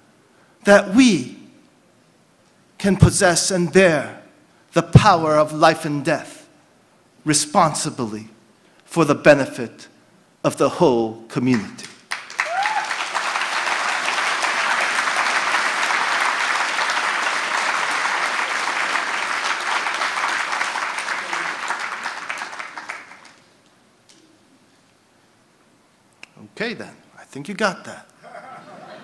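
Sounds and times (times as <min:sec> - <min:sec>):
audience applauding: 0:12.1 - 0:23.5.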